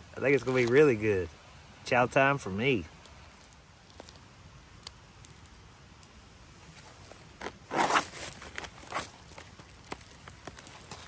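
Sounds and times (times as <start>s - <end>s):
pouch ripping open: 7.0s - 11.0s.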